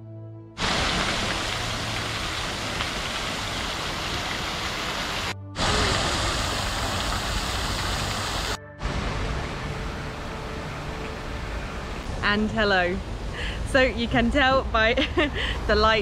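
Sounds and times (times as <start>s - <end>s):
fountain water splashing: 0.6s - 9.3s.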